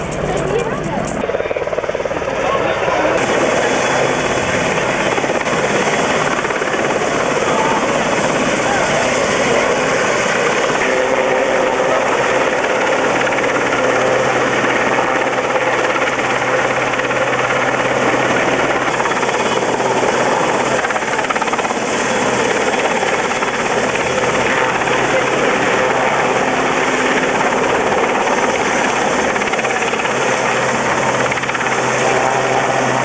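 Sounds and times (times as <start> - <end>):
helicopter rotor and turbine noise: 0.0 - 33.0.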